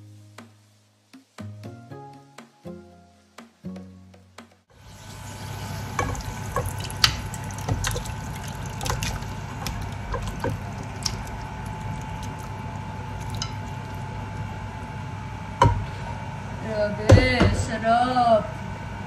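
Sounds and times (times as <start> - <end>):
sauce bubbling in a pot: 4.8 - 15.6.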